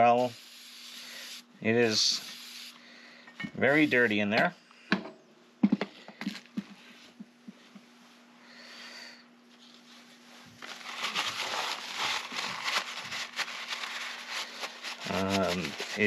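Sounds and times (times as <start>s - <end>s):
paper towel rubbing: 10.6s - 16.0s.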